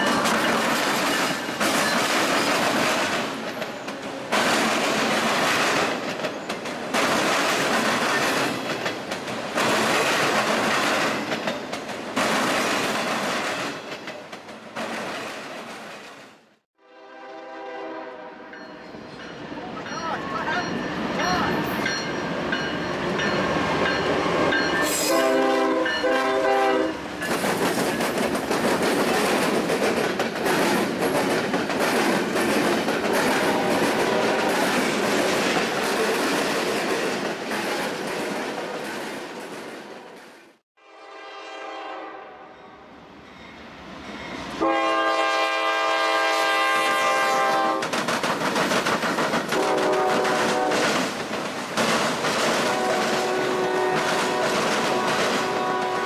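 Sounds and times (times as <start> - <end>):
train wheels on rails: 0.0 - 16.6, 18.5 - 40.6, 43.1 - 56.0
train horn blasts: 16.8 - 18.6, 24.8 - 27.0, 40.8 - 42.8, 44.6 - 47.8, 49.6 - 50.8, 52.6 - 56.0.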